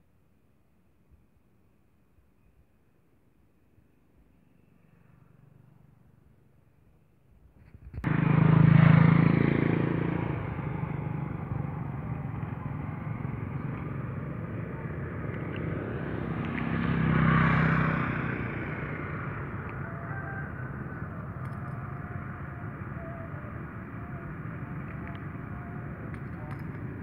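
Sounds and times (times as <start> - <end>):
motorcycle engine running: 8.0 - 27.0.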